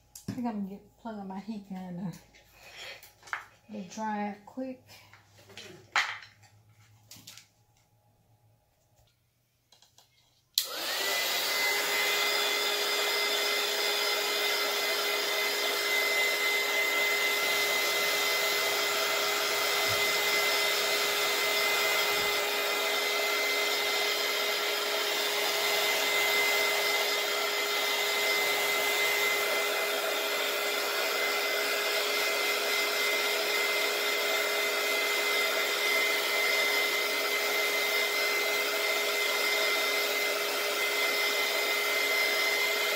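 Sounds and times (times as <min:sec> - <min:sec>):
heat gun switch: 0:10.6 - 0:11.4
heat gun blowing air: 0:10.6 - 0:42.9.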